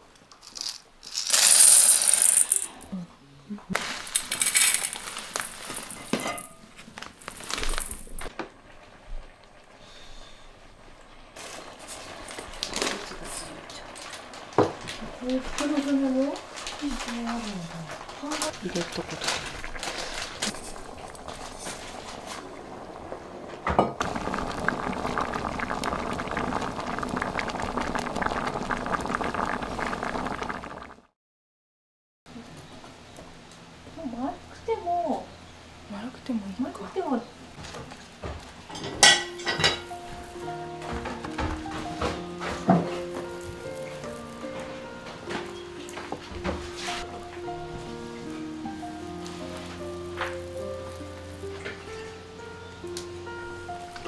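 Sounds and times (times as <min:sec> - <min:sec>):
plastic bag crinkling: 0:00.3 - 0:02.8, 0:03.8 - 0:08.3, 0:11.4 - 0:22.9, 0:42.9 - 0:44.8
powder pouring into metal bowl: 0:00.5 - 0:02.8, 0:03.8 - 0:06.5, 0:07.2 - 0:08.2, 0:43.0 - 0:44.4
thick bubbles popping in a pot: 0:11.4 - 0:31.1, 0:39.0 - 0:44.6.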